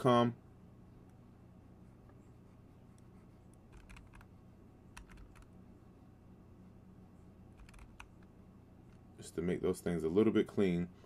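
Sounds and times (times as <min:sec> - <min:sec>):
low steady hum: 0:00.0 - 0:11.0
keyboard keystrokes: 0:03.7 - 0:04.3, 0:05.0 - 0:05.5, 0:07.6 - 0:08.2.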